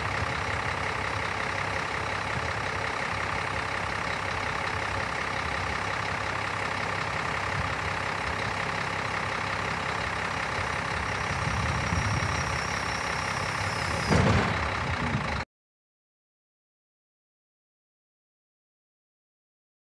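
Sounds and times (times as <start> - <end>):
diesel truck engine running: 0.0 - 15.4.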